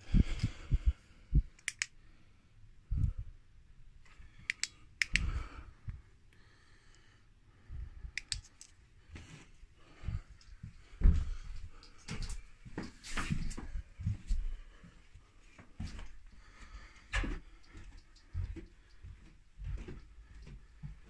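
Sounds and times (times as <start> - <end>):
footsteps: 10.0 - 21.0.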